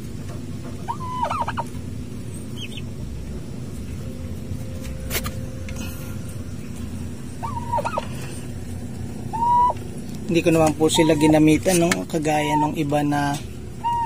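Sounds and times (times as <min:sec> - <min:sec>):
steady low hum: 0:00.0 - 0:14.0
turkey calling with warbles: 0:00.8 - 0:01.8, 0:02.5 - 0:02.9, 0:07.4 - 0:08.4, 0:09.2 - 0:09.9, 0:10.7 - 0:11.5, 0:12.3 - 0:12.8, 0:13.7 - 0:14.0.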